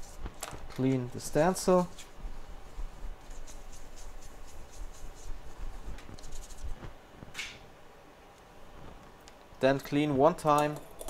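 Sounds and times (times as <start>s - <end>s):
wipe rubbing on metal stencil: 1.8s - 6.9s.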